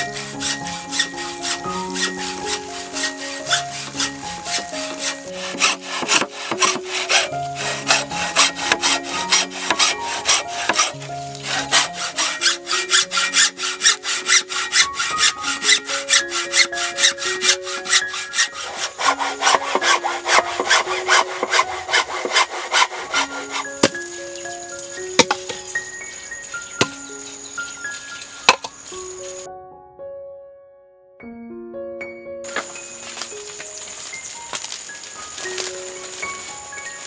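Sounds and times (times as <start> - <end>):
hacksaw cutting bamboo: 0.0 - 25.8
soft background music: 0.0 - 37.0.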